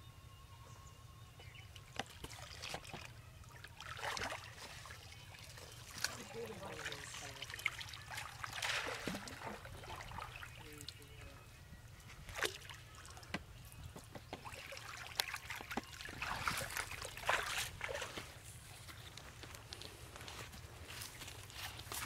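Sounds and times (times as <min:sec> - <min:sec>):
water splashes: 0:01.8 - 0:11.4, 0:12.2 - 0:13.3, 0:14.2 - 0:18.8.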